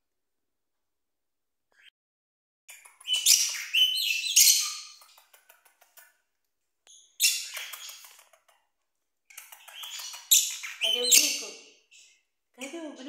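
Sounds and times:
parrots chirping and squawking: 2.7 - 6.1, 6.9 - 8.7, 9.3 - 12.4.

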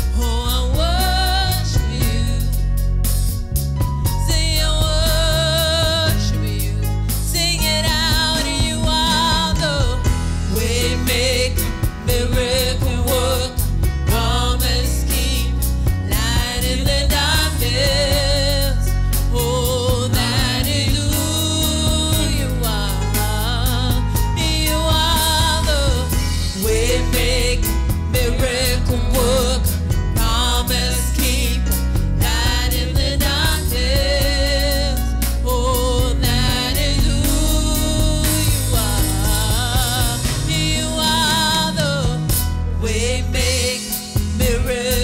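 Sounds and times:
woman singing gospel song: 0.0 - 2.8, 4.0 - 45.0
live band with drums and keyboard: 0.0 - 45.0.

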